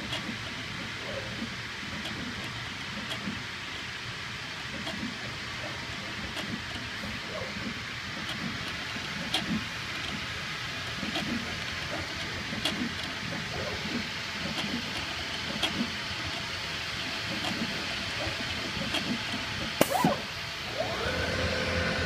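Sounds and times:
low mechanical rumble: 0:00.0 - 0:22.0
cutting machine hiss: 0:18.8 - 0:22.0.

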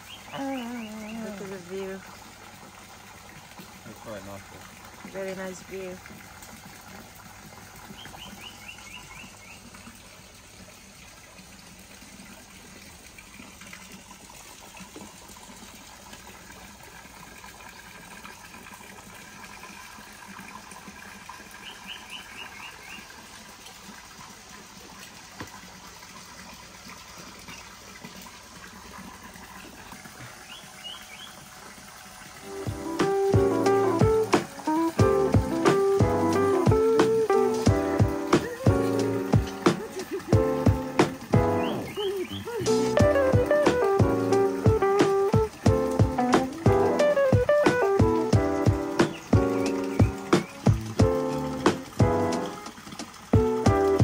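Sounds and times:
water trickling into pool: 0:00.0 - 0:54.0
bird calling high notes: 0:41.5 - 0:44.6.

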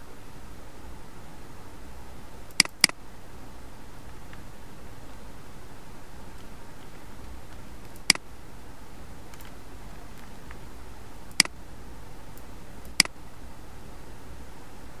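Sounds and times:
low hiss: 0:00.0 - 0:15.0
computer mouse clicks: 0:02.5 - 0:03.0, 0:06.3 - 0:08.2, 0:09.3 - 0:10.6, 0:11.3 - 0:11.6, 0:12.3 - 0:13.2.

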